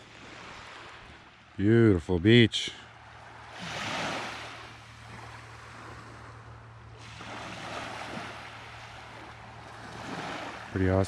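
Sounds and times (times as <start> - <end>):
ocean surf washing onto beach: 2.9 - 11.0.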